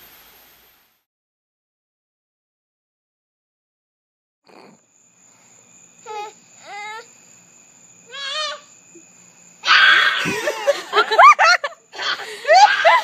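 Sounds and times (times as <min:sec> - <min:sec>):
toddler crying: 0:06.1 - 0:07.1, 0:08.1 - 0:08.7.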